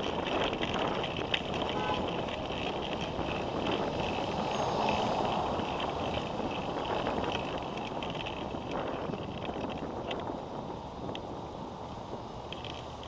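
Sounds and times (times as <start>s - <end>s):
light uneven rattle: 0.0s - 10.4s
bicycle tyre noise on pavement: 0.0s - 13.0s
wind on microphone: 0.0s - 13.0s.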